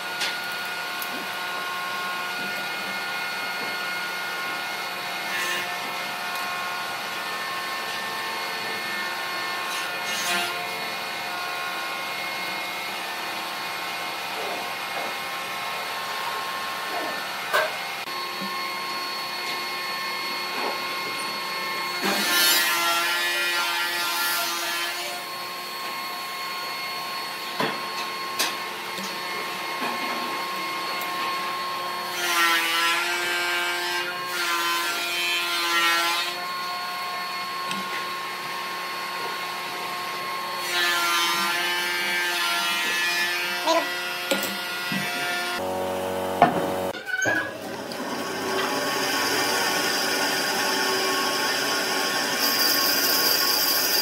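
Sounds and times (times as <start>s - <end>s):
machine hum: 45.6s - 46.9s.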